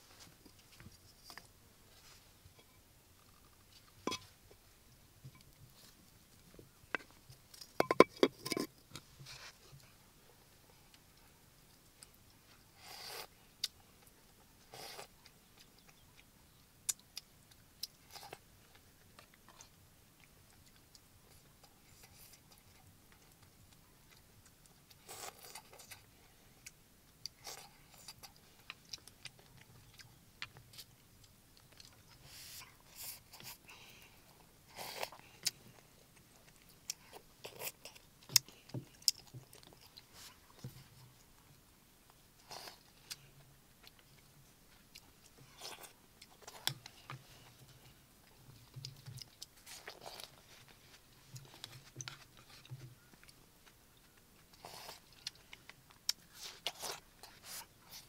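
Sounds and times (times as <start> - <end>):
person chewing: 34.7 - 40.8, 43.8 - 47.6, 48.6 - 58.0.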